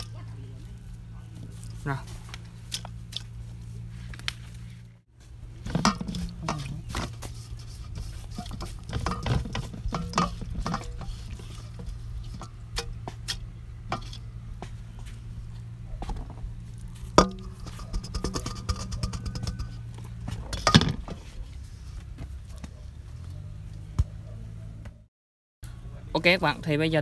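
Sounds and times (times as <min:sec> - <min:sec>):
steady low hum: 0:00.0 - 0:25.1
steel bowl and bamboo tube clinking: 0:05.6 - 0:14.3, 0:17.0 - 0:21.2.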